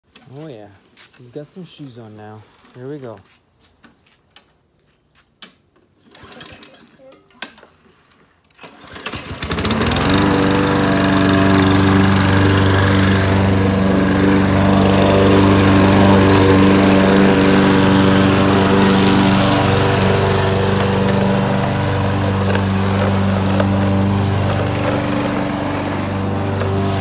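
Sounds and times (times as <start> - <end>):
lawn mower engine running: 8.6 - 27.0
pull starter rattling: 8.6 - 27.0.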